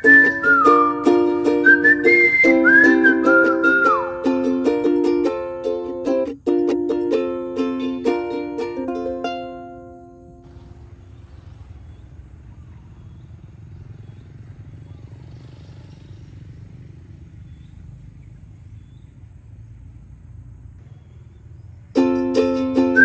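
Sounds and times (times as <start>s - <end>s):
small bird chirping: 10.2s - 22.0s.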